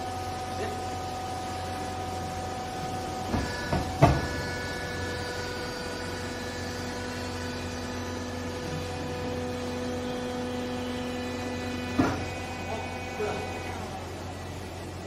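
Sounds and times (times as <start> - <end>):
hydraulic pump motor hum: 0.0 - 15.0
knocks on machine controls: 3.3 - 4.3.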